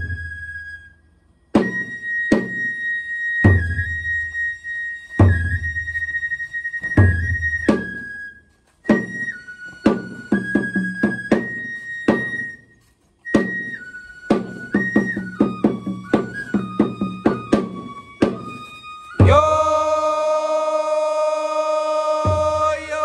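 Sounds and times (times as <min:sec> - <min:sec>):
bamboo flute melody: 0:00.0 - 0:23.0
loud held tone with overtones: 0:14.5 - 0:23.0.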